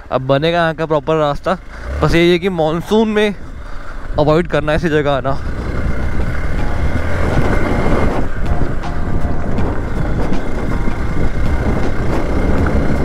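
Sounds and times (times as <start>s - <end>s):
motorcycle engine rumbling: 0.0s - 13.0s
wind noise on microphone: 3.1s - 13.0s.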